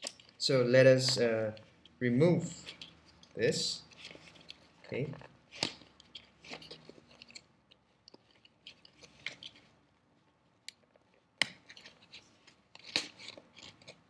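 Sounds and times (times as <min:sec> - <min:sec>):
light clicks and rubbing: 0:01.0 - 0:09.8.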